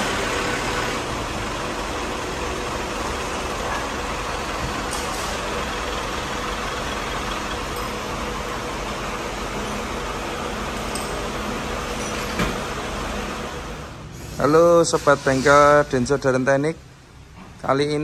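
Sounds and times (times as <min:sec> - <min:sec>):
diesel truck engine running slowly: 0:00.0 - 0:13.8.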